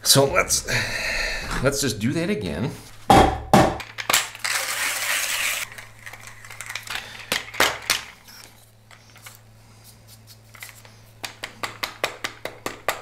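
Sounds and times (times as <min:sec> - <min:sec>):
coffee grinder crushing beans: 0:03.8 - 0:08.4.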